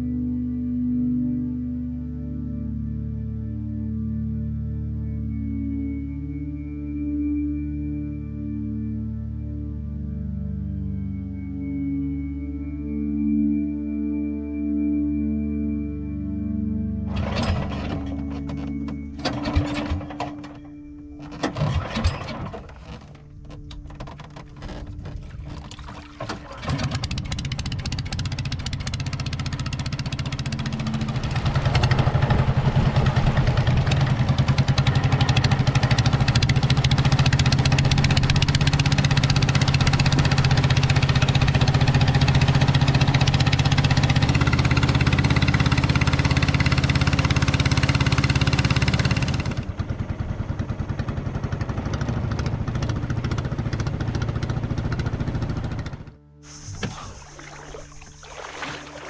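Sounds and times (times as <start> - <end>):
motorboat engine running: 16.2 - 59.0.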